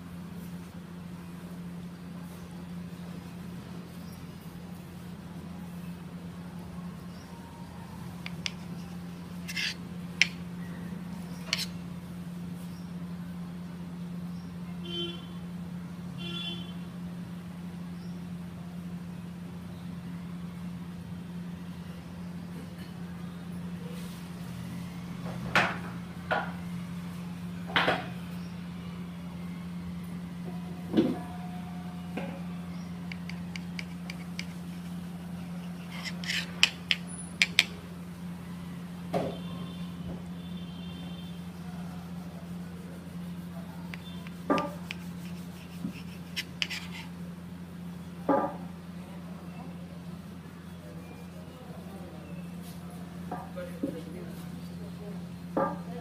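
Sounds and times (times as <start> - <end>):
steady low hum: 0.0 - 53.4
knife cutting bread crust: 8.2 - 10.4, 11.4 - 11.8, 33.1 - 37.8, 43.2 - 47.2.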